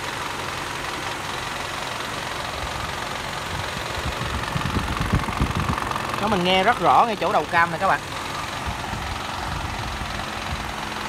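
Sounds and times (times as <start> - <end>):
car engine idling with noise: 0.0 - 11.0
low rumbling thuds: 3.5 - 6.3.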